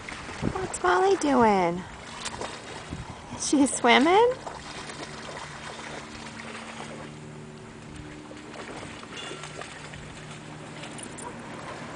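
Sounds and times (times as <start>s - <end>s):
distant motor drone: 0.0s - 11.9s
outdoor background noise: 0.0s - 11.9s.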